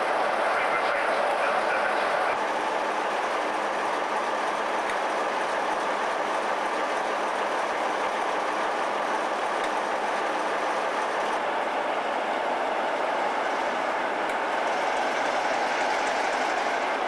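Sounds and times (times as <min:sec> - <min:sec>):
diesel locomotive engine idling: 0:00.0 - 0:17.0.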